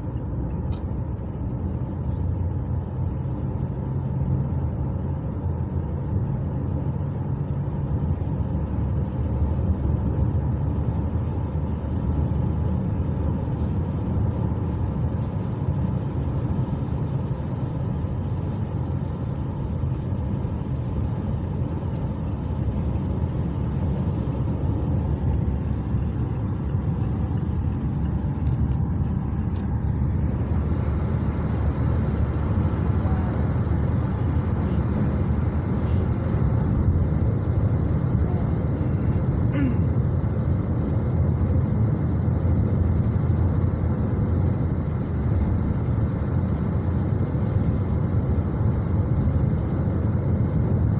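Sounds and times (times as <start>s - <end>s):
road and engine rumble: 0.0s - 50.9s.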